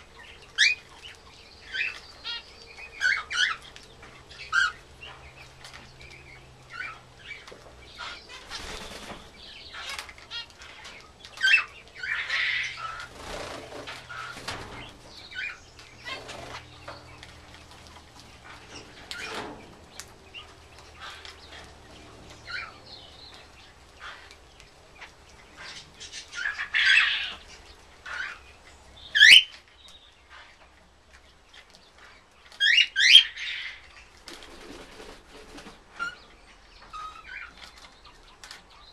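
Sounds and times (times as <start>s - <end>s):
wings flapping: 8.3s - 12.0s, 12.7s - 21.8s, 34.1s - 36.0s.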